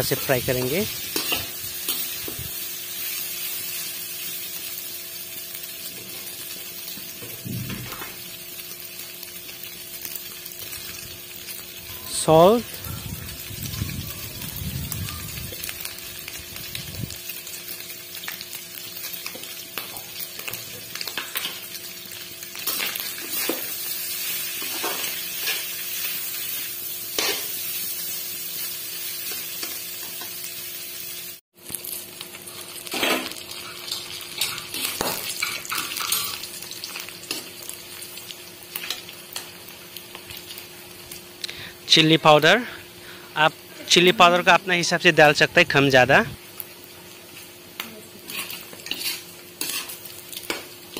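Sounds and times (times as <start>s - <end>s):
meat sizzling in oil: 0.0s - 50.9s
metal spatula scraping pan: 48.3s - 50.0s.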